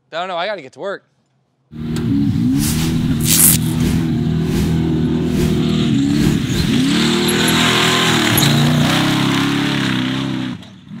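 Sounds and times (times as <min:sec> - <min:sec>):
race car engine revving: 0:01.8 - 0:10.6
tyres on sand and dirt: 0:02.8 - 0:04.8, 0:05.4 - 0:09.5.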